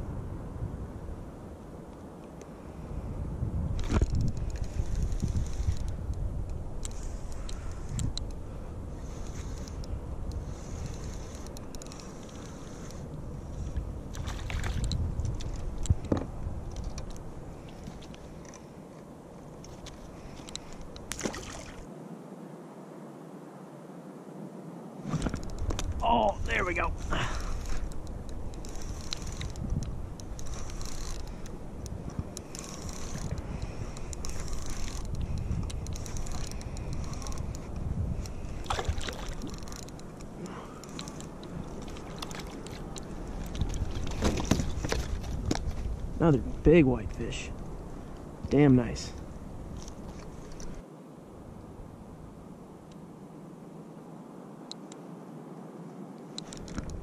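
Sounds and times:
small clicks: 3.8 - 8.4, 9.1 - 13.0, 13.6 - 18.6, 27.4 - 45.7, 56.3 - 57.0
light handling clicks: 19.6 - 21.2, 56.4 - 57.0.

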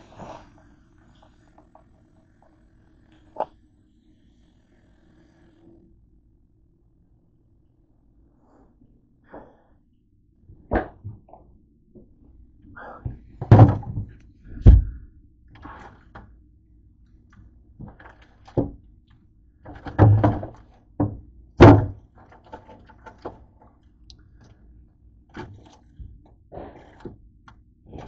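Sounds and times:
thunks on refrigerator shelves: 10.6 - 11.3, 13.0 - 15.1, 19.7 - 22.0.

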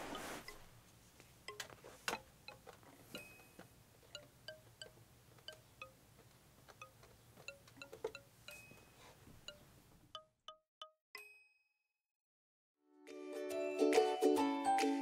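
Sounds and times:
soft tinkling chime music: 3.1 - 3.6, 8.4 - 9.1.

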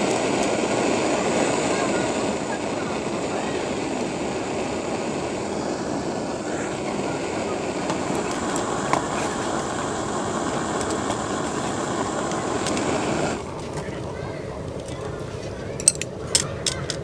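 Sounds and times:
gas stove flame rushing: 0.0 - 17.0
metal mug clink: 15.8 - 16.9.

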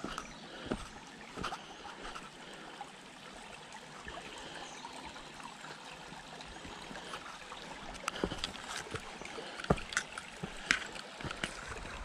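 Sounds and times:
footstep on dirt: 0.0 - 2.2, 8.1 - 11.6
creek trickling over rocks: 0.0 - 12.0.

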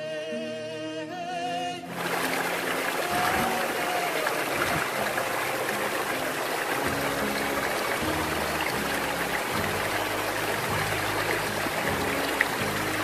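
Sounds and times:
low musical notes: 1.8 - 13.0
stream rushing over rocks: 1.9 - 13.0.

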